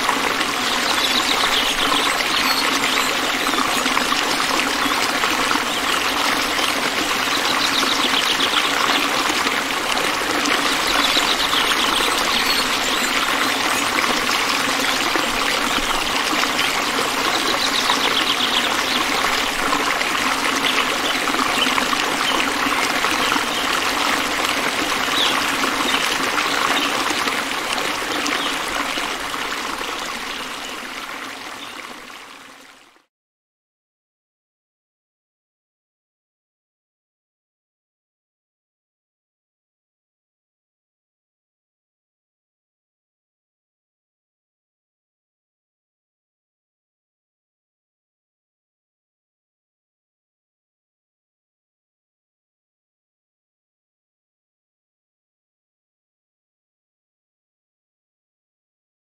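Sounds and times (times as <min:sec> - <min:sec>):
fountain water trickling over rocks: 0:00.0 - 0:33.1.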